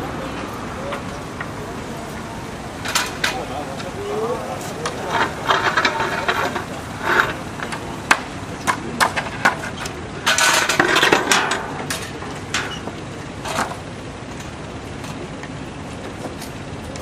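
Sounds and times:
wooden boards knocking and clattering: 4.8 - 13.8.

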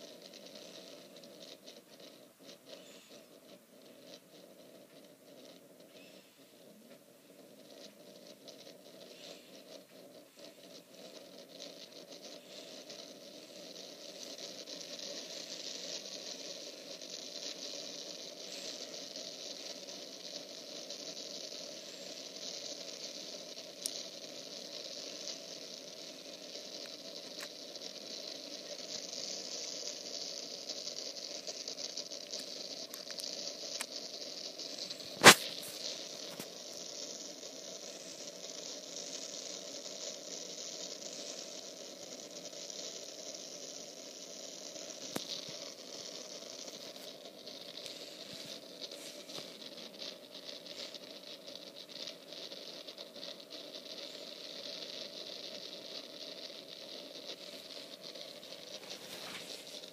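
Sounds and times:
faint ticks: 0.0 - 59.9
steady hiss: 0.0 - 59.9
loud sharp click: 35.2 - 35.6.

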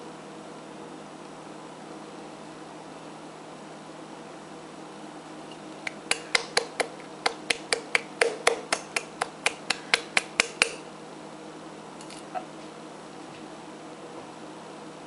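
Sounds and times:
palm slapping jar bottom: 5.9 - 10.8.

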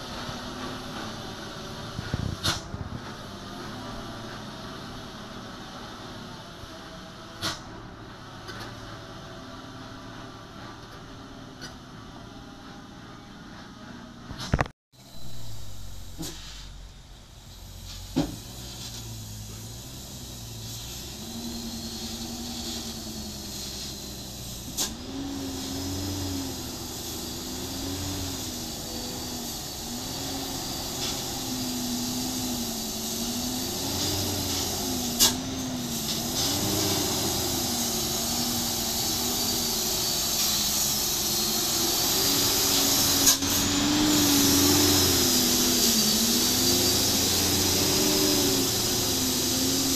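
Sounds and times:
diesel truck engine: 0.0 - 49.9
steady hiss: 15.0 - 49.9.

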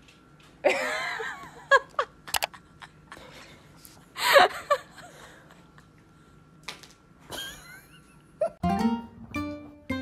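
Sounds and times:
sharp clicks: 2.3 - 2.5.

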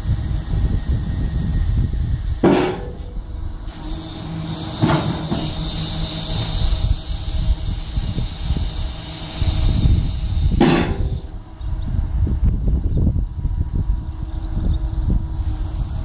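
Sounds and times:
hydraulic ramp lowering: 0.0 - 11.4
low mechanical hum: 0.0 - 16.0
sharp metallic clanks: 2.4 - 3.2, 10.6 - 11.3.

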